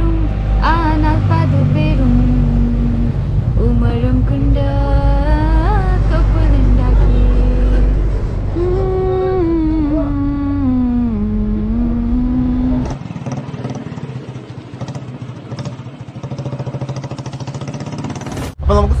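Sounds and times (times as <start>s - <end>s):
motorcycle engine idling: 12.6s - 18.2s.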